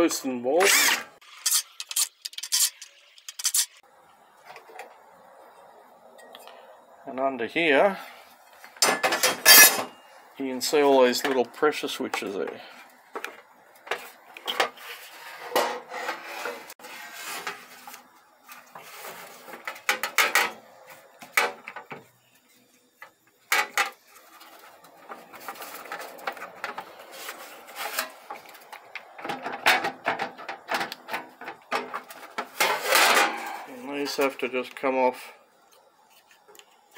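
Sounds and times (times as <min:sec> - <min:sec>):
parts scraping on metal tray: 0:00.6 - 0:03.8, 0:08.8 - 0:10.0, 0:13.9 - 0:20.6, 0:23.5 - 0:28.7, 0:29.3 - 0:33.9
plastic parts clicking and knocking: 0:01.5 - 0:03.8, 0:28.0 - 0:33.3.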